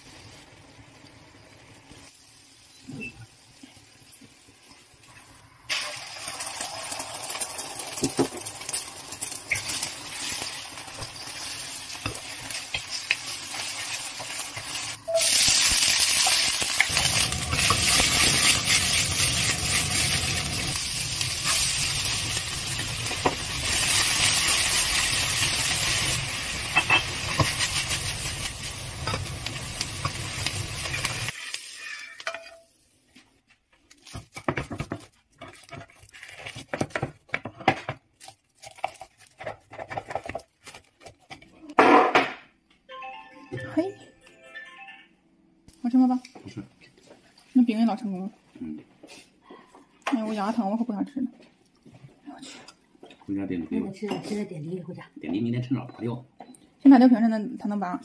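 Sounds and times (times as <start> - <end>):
hot oil sizzling: 0.0 - 33.1
spatula scraping a wok: 30.8 - 32.7.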